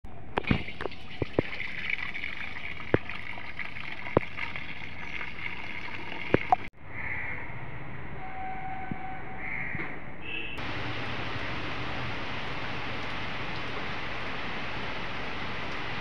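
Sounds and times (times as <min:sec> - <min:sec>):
outdoor background noise: 0:00.1 - 0:16.0
water pouring into basin: 0:00.4 - 0:06.7, 0:10.6 - 0:16.0.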